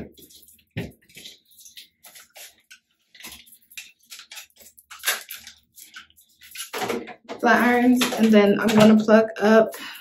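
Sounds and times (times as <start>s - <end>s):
cord rustling and clicking: 0.0s - 9.2s.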